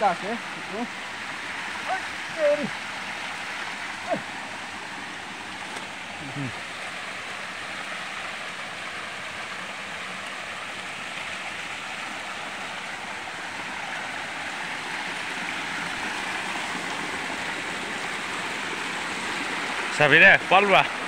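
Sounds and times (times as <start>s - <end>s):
water rushing: 0.0s - 21.0s.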